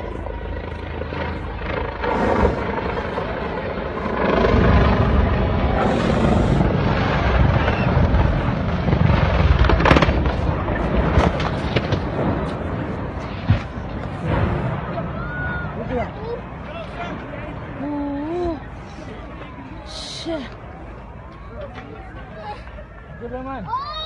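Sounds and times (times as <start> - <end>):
helicopter rotor and engine: 0.0 - 14.5
sharp crack: 6.8 - 15.3.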